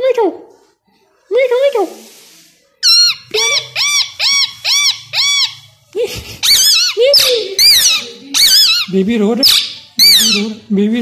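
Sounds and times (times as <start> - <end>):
parakeet calling: 2.8 - 5.8, 6.4 - 10.7.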